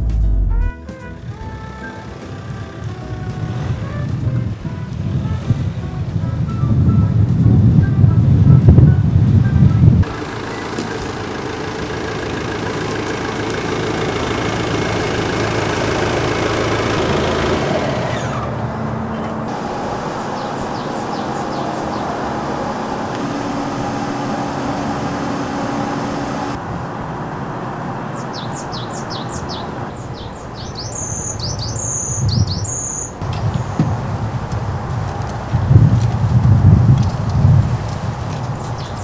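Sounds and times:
low hum: 0.0s - 6.2s, 9.9s - 26.6s
steady rushing noise: 1.3s - 28.4s
small birds chirping: 10.0s - 18.5s, 19.1s - 26.6s, 28.1s - 33.9s, 38.3s - 39.0s.

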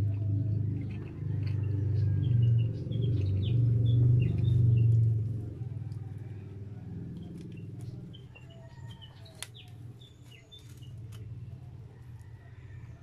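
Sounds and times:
small birds chirping: 0.0s - 13.0s
steady low hum: 0.0s - 13.0s
aluminium foil crackling: 9.3s - 11.2s.

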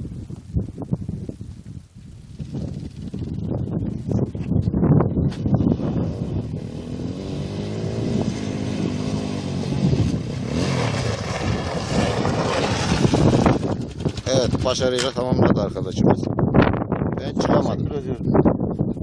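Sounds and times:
small motorcycle engine revving: 5.6s - 14.3s.

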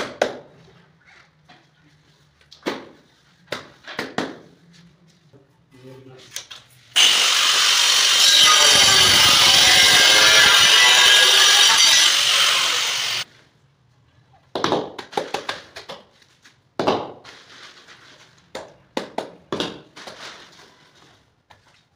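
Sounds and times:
angle grinder cutting tile: 7.0s - 13.2s.

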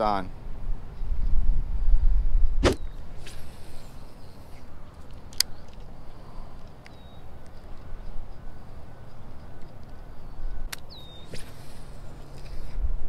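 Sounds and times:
wind rumbling on microphone: 0.0s - 13.0s
fishing rod swish: 2.6s - 4.0s, 11.2s - 12.7s
fishing line running off spool: 11.0s - 12.8s.

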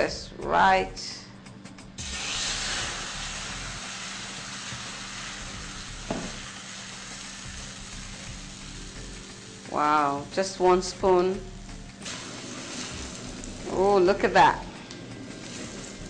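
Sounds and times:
batter sizzling in a hot pan: 2.0s - 14.4s, 15.2s - 16.0s.

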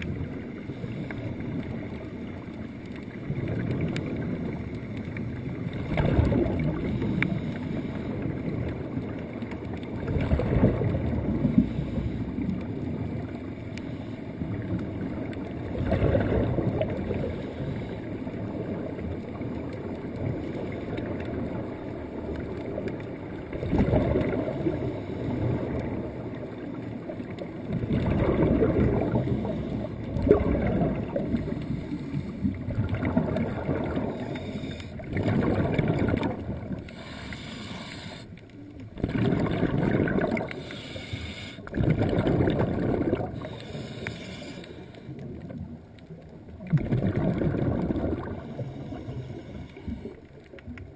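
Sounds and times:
muffled underwater rumble: 0.0s - 50.9s
air bubbling: 5.8s - 7.0s, 27.7s - 38.2s, 38.9s - 44.0s, 46.6s - 49.0s.

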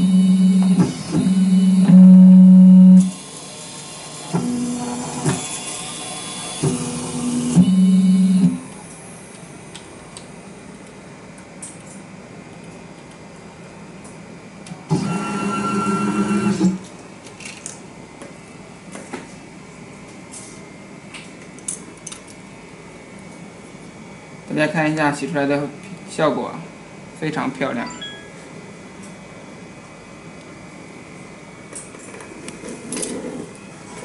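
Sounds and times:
machine motors buzzing: 0.0s - 9.0s, 14.9s - 16.9s.

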